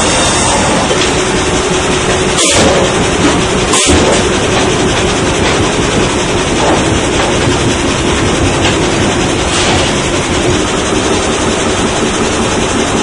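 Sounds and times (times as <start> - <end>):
sawmill conveyor machinery: 0.0 - 13.0.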